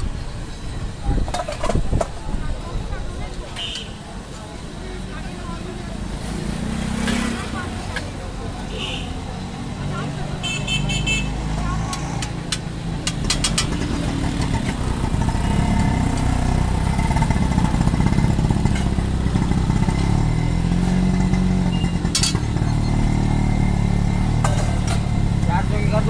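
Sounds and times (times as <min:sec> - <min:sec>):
street traffic noise: 0:00.0 - 0:26.0
vehicle engine running: 0:05.8 - 0:26.0.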